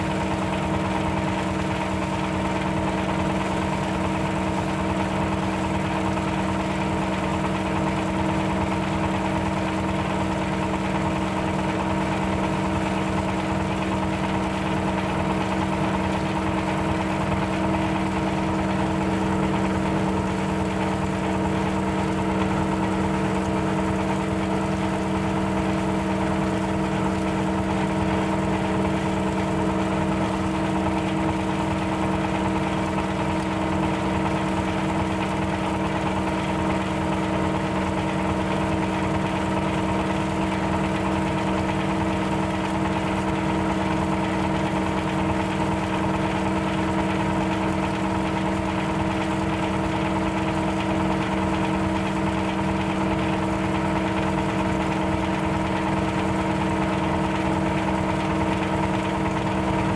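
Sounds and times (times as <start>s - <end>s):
shredder engine humming: 0.0s - 59.9s.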